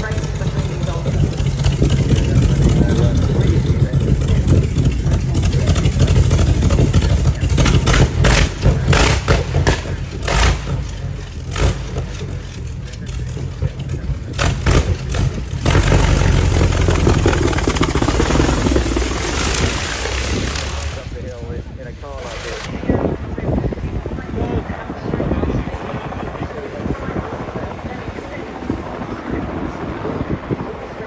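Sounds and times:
racing car engine revving: 14.3s - 21.3s.

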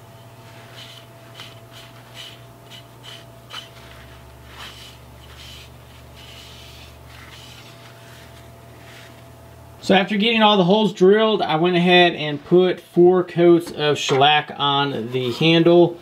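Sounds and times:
cloth rag wiping wood: 0.2s - 9.2s.

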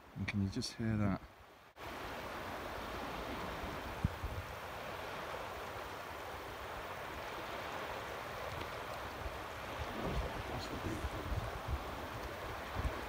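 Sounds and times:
rush of tidal water: 0.0s - 13.0s.

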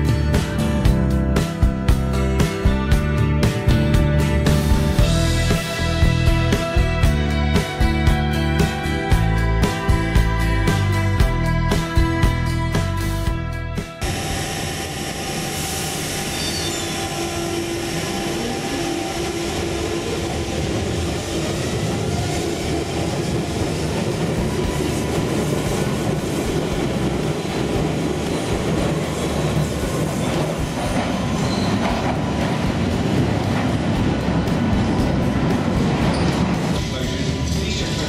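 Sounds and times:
train rumbling on rails: 0.0s - 13.1s, 13.8s - 38.0s
train tone: 14.0s - 38.0s.

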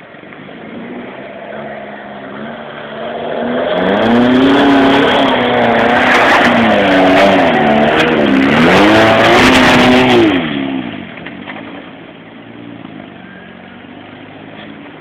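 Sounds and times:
car engine revving hard: 0.4s - 11.2s.

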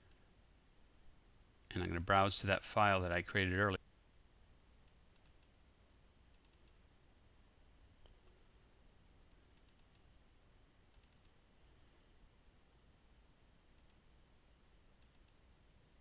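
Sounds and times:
computer mouse clicks: 4.8s - 5.6s, 6.3s - 6.8s, 9.5s - 10.1s, 10.9s - 11.4s, 13.8s - 14.0s, 15.0s - 15.4s.

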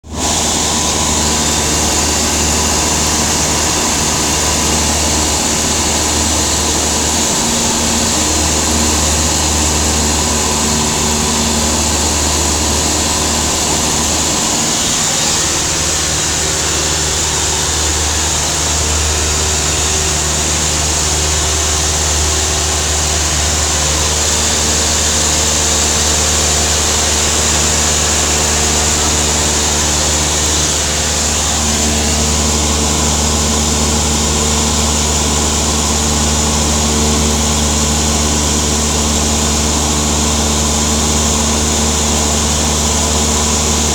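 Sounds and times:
airplane engine droning: 0.0s - 43.9s.

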